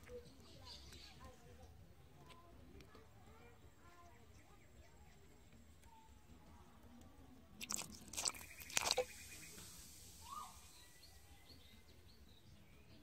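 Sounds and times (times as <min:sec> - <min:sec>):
fish splashing in water: 0:07.6 - 0:10.7.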